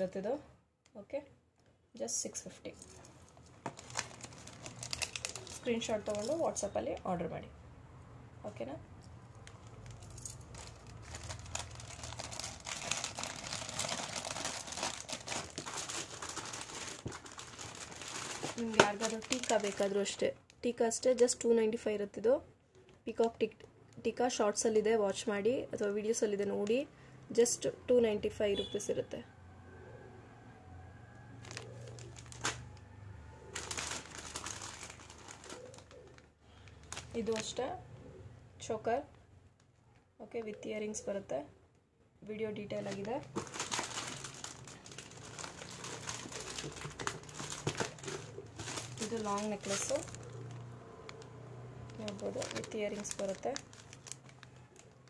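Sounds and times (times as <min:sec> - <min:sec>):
plastic packet crinkling: 0:02.8 - 0:06.7, 0:09.3 - 0:20.4, 0:31.4 - 0:32.8, 0:33.5 - 0:37.6, 0:42.7 - 0:55.0.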